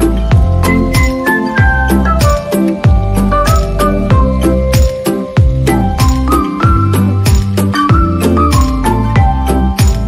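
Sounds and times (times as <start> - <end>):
background music with melody: 0.0 - 10.0.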